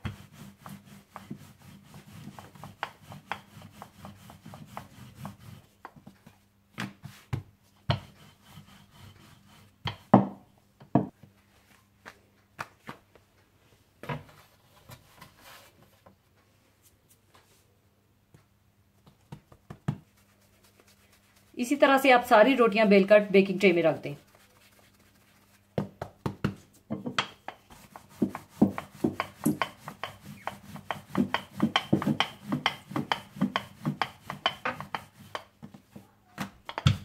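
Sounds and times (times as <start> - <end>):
rolling pin rubbing dough: 0.0 - 6.4, 7.0 - 10.2, 23.6 - 26.6, 27.2 - 37.0
knocks and taps of handling: 25.8 - 27.6, 28.2 - 37.0.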